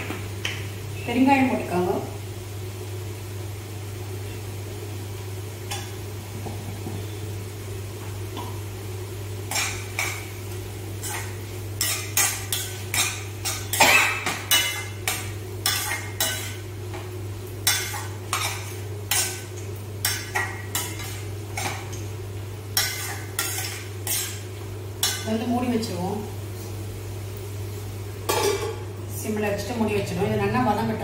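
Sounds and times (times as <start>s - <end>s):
vegetables sizzling: 0.0s - 31.0s
spatula scraping a pan: 22.8s - 24.4s.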